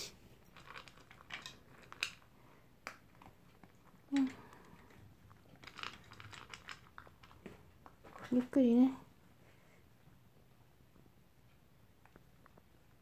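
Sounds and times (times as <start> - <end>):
dog crunching kibble: 0.4 - 8.6.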